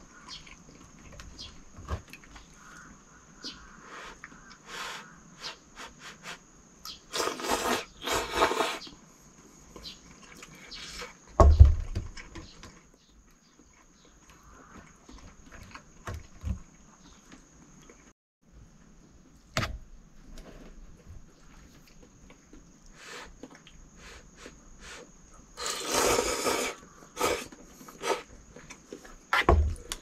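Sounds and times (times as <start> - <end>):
noodles being slurped: 7.1 - 8.9, 25.6 - 28.3.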